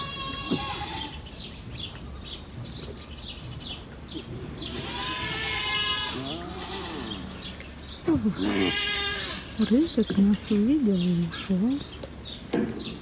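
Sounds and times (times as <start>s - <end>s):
lion cub crying: 4.7s - 7.3s, 8.4s - 9.6s.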